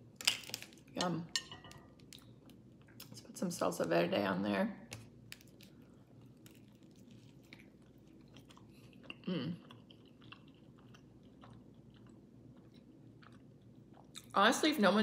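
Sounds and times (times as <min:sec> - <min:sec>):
person chewing food: 0:05.2 - 0:14.3.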